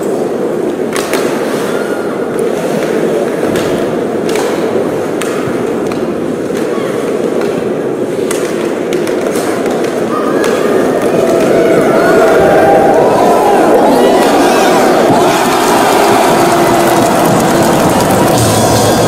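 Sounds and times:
hockey sticks clacking: 0.6 - 1.8, 2.4 - 11.6.

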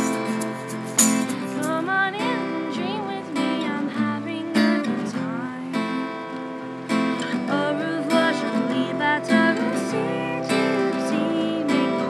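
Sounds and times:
tambourine and shaker jingling: 0.0 - 1.8
person singing: 0.0 - 6.0, 7.2 - 12.0
strummed acoustic guitar: 0.0 - 12.0.

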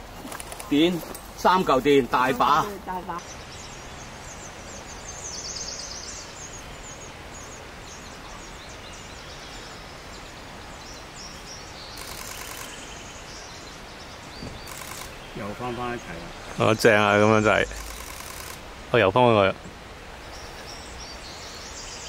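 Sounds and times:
steady background noise: 0.0 - 22.0
small birds chirping: 0.2 - 22.0
rapid bird trill: 11.8 - 13.5, 14.5 - 16.1, 17.3 - 18.7
fast high clicks: 12.0 - 12.8, 14.6 - 15.2, 17.7 - 18.7.

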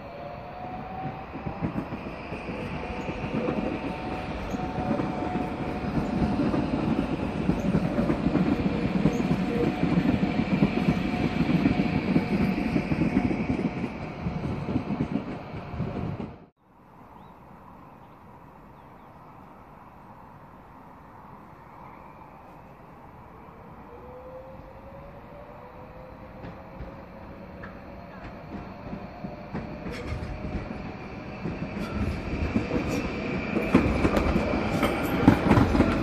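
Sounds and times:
train wheels rumbling on rails: 0.0 - 16.5, 24.8 - 36.0
train whine: 0.0 - 16.5, 17.6 - 36.0.

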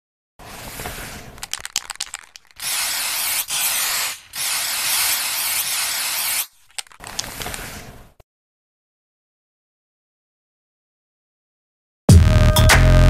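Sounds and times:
spray paint hissing: 0.5 - 7.8
spray can rattling: 0.6 - 7.6.

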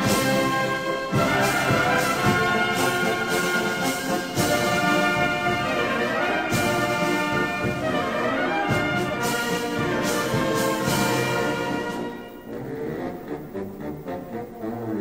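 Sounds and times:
brass band playing: 0.0 - 15.0.

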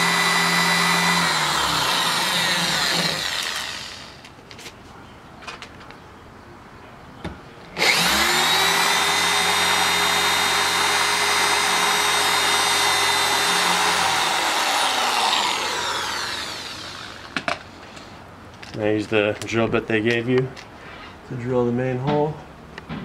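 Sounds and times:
electric drill whining: 0.0 - 4.3, 7.8 - 17.4.

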